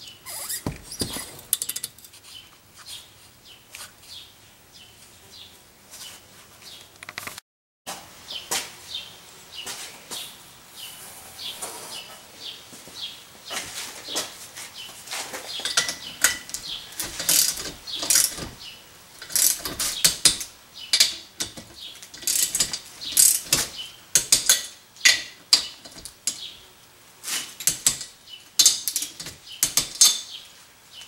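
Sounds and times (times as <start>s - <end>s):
ratchet wrench clicking: 17.0s - 18.4s, 19.2s - 21.6s, 22.2s - 23.6s.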